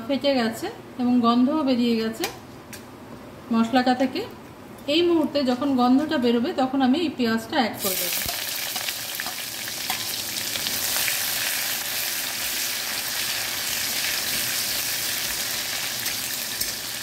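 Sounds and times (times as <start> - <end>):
onion sizzling in oil: 7.8 - 17.0.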